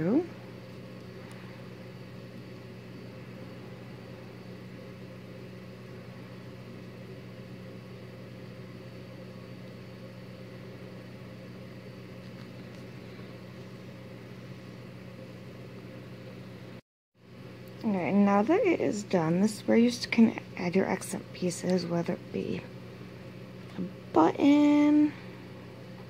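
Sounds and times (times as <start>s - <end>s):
electrical hum with hiss: 0.0s - 26.0s.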